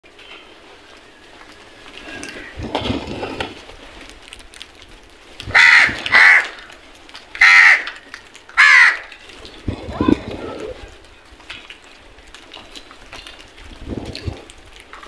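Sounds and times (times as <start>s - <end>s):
crows cawing: 5.5s - 9.2s.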